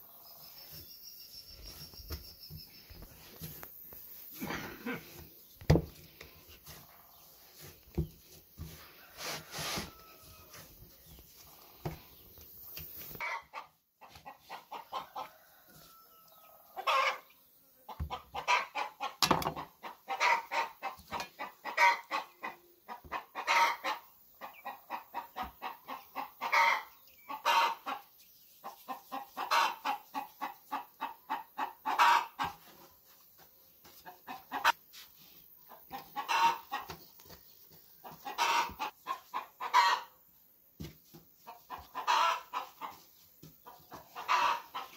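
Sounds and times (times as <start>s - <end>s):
chickens clucking: 13.2s - 33.2s, 33.8s - 40.3s, 41.4s - 44.9s.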